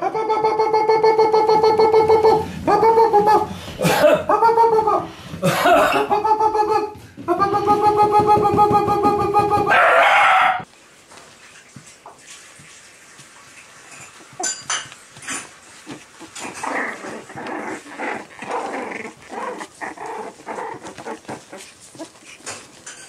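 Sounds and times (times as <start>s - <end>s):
puppy growls and yips: 9.6s - 10.7s, 16.2s - 22.8s.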